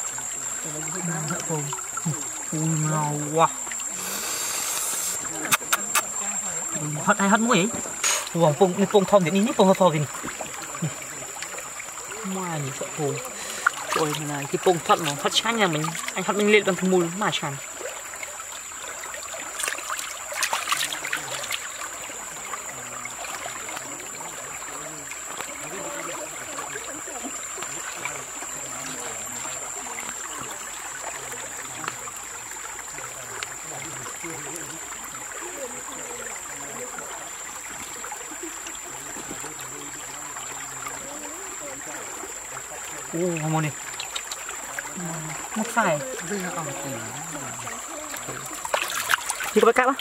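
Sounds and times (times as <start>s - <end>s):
stream trickling over rocks: 0.0s - 50.0s
wet splashes: 0.0s - 50.0s.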